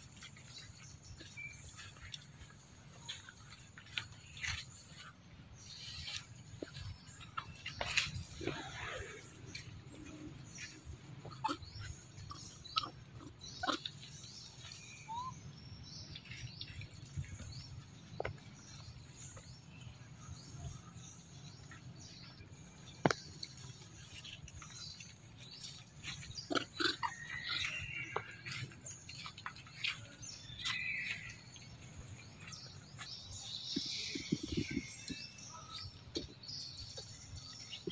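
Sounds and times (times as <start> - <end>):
high animal squeaks and chirps: 10.6 - 15.5.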